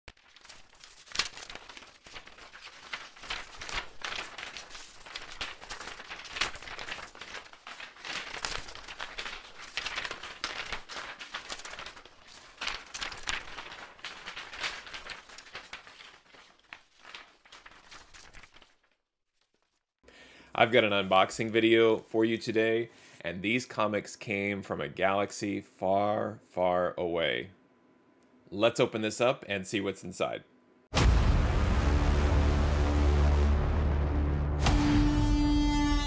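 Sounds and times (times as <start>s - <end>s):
packaging rustling and crinkling: 0.1s - 19.8s.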